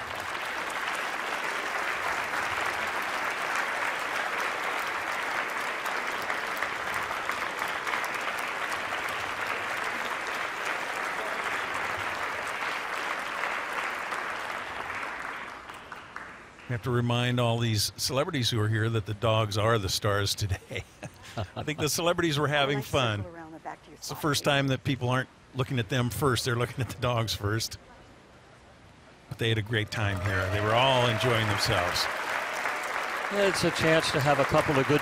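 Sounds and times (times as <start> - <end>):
audience clapping: 0.0 - 17.0, 29.4 - 35.0.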